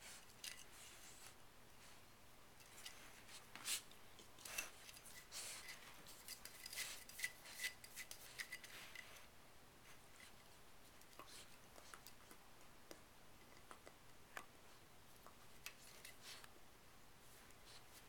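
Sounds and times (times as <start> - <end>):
puppy gnawing a chew bone: 11.0 - 16.4.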